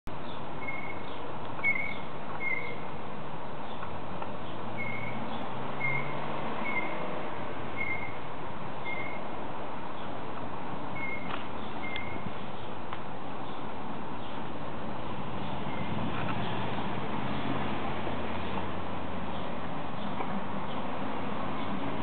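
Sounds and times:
small bird chirping: 0.2s - 2.9s, 3.6s - 7.0s, 7.8s - 8.2s, 8.8s - 9.2s, 11.0s - 12.8s.

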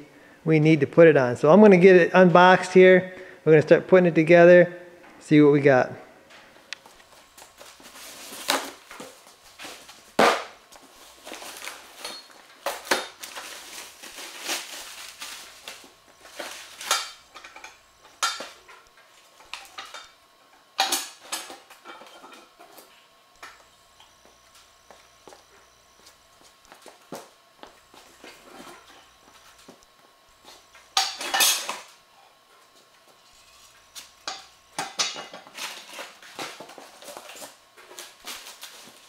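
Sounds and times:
cardboard and plastic bag rustling: 7.2s - 10.1s, 10.8s - 16.9s.

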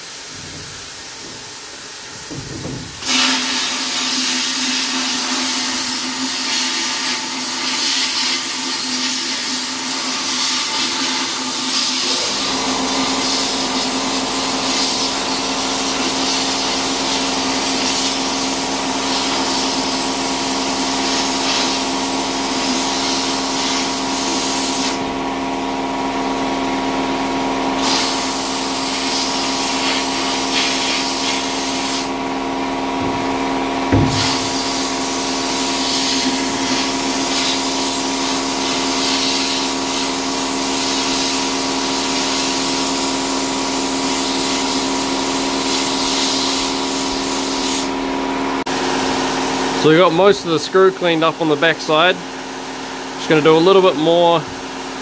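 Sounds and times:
sandblaster nozzle hissing: 0.0s - 25.2s, 27.8s - 32.4s, 33.0s - 48.0s
single knock: 33.9s - 34.4s.

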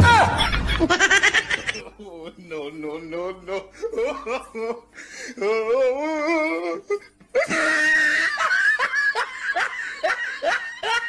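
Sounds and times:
people laughing: 0.1s - 2.3s, 3.7s - 4.9s, 7.0s - 11.0s.

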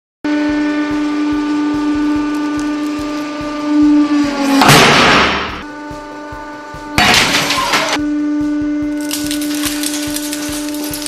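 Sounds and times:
spools crunching and cracking: 9.0s - 11.0s.

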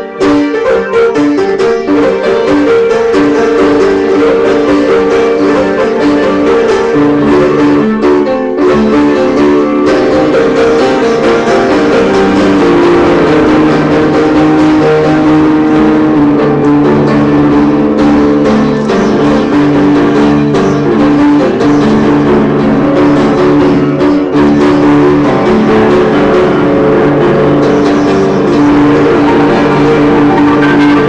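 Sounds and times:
upright piano playing: 0.0s - 31.0s.

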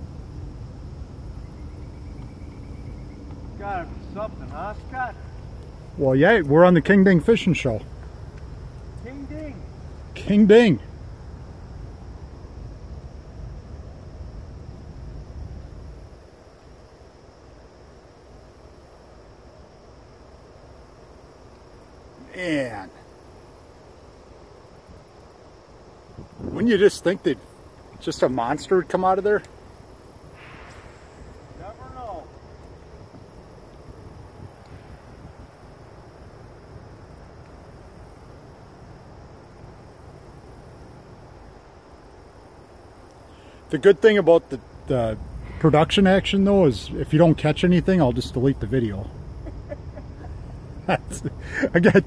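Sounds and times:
faint high hiss: 0.0s - 52.0s
insects chirring: 0.0s - 52.0s
wind rumble on microphone: 26.0s - 26.7s, 32.6s - 35.9s.

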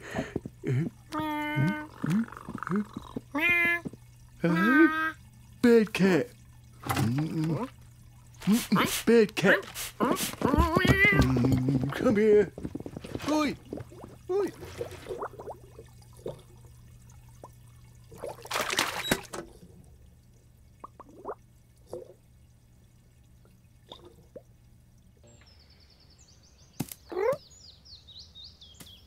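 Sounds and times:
short bloops: 0.0s - 19.2s
high twittering birds: 25.3s - 29.0s.

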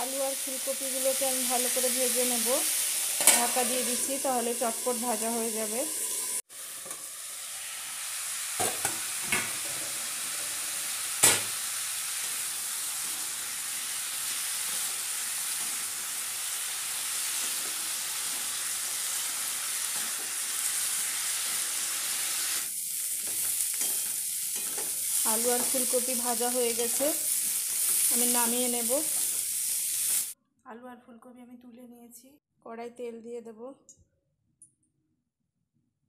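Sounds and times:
vegetables frying in oil: 0.0s - 30.4s.

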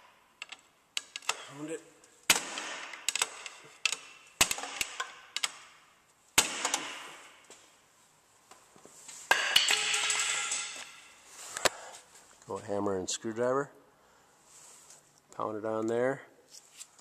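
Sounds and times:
metal clattering and ringing: 9.3s - 11.2s.

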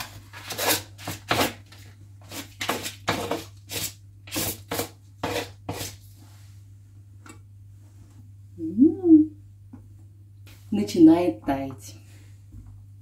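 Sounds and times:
knife scraping butter wrapper: 0.0s - 6.0s
steady low hum: 5.0s - 13.0s.

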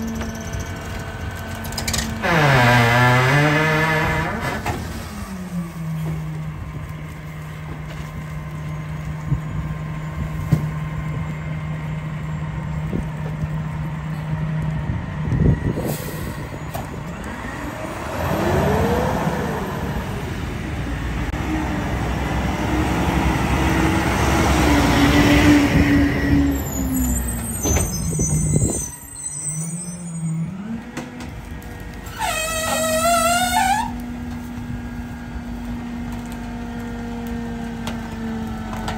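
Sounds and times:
garbage truck diesel engine: 0.0s - 38.9s
air brake hiss: 15.8s - 16.6s
high wavering squeal: 26.4s - 30.6s.

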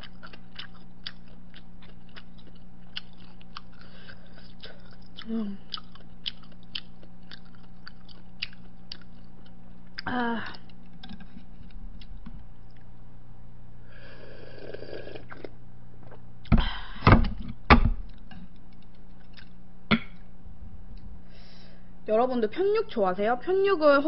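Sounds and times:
mouth eating clicks: 0.0s - 12.9s, 18.1s - 20.2s
falling hum: 0.0s - 22.4s
slurping broth: 13.9s - 15.5s.

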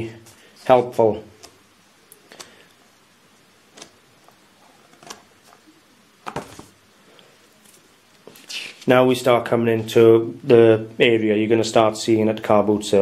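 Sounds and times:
book pages turning: 3.7s - 6.8s, 7.6s - 8.9s.

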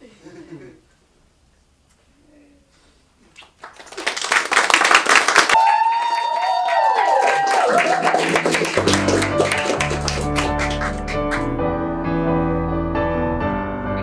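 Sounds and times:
people applauding: 3.4s - 11.5s
people cheering with whoops: 5.5s - 10.8s
keyboard music: 8.7s - 14.0s.

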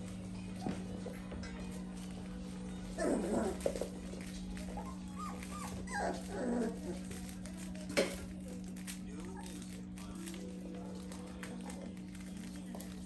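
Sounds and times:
puppies whimpering and yipping: 2.8s - 7.5s.

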